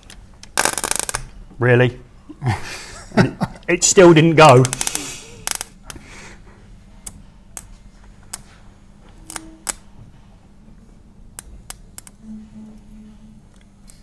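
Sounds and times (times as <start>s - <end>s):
sharp electrical clicks: 0.0s - 1.4s, 4.4s - 6.0s, 7.0s - 7.7s, 9.2s - 9.9s, 11.3s - 12.2s
electrical heater hum: 0.0s - 14.0s.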